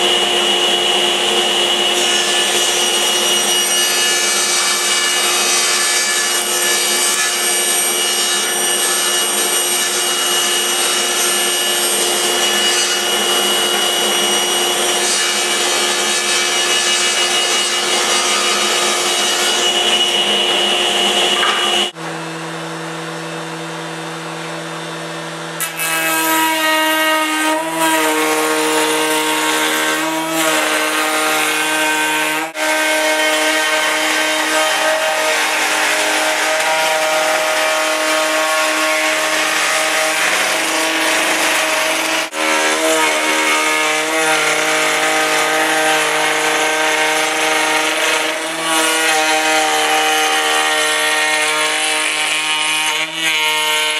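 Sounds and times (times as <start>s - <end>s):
power tool cutting wood: 0.0s - 53.9s.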